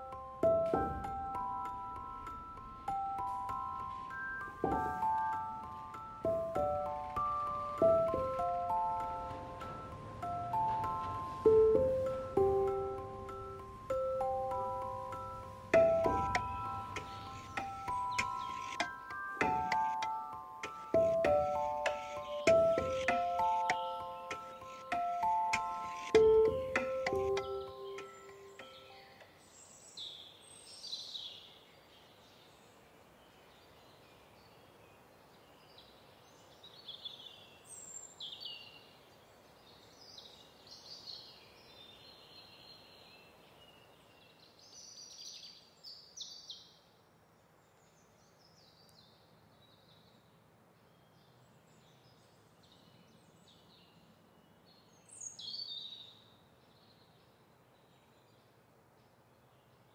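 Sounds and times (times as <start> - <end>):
birds chirping: 0.0 - 46.8
background hiss: 0.0 - 59.9.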